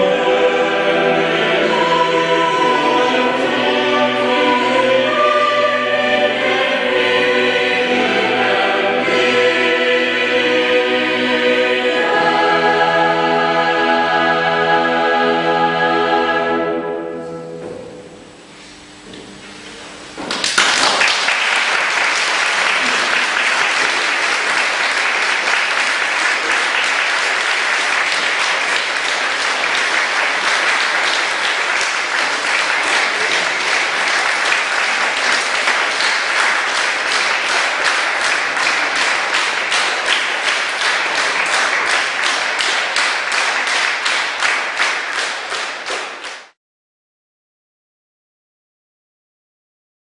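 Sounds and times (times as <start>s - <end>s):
audience applauding: 20.3s - 46.6s.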